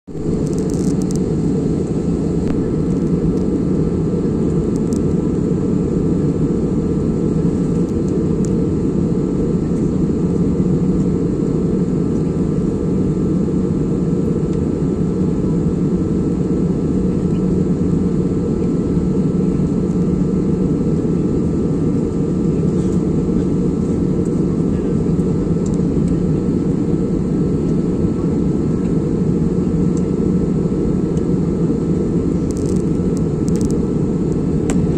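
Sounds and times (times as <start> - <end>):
airliner cabin engine rush: 0.1 - 34.9
faint steady whine: 0.1 - 34.9.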